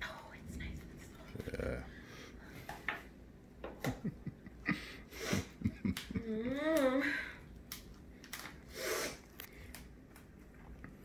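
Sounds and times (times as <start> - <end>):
person humming: 1.4 - 1.9, 5.9 - 7.1.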